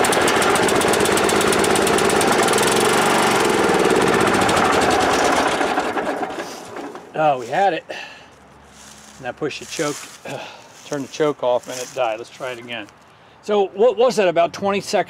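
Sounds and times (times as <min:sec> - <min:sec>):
tractor engine running: 0:00.0 - 0:07.6.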